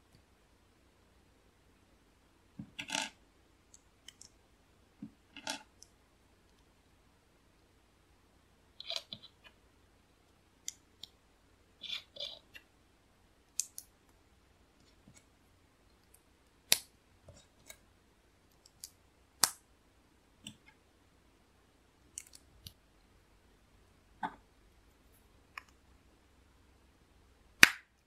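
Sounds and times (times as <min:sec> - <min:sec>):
plastic bricks clicking: 0:02.7 - 0:03.2.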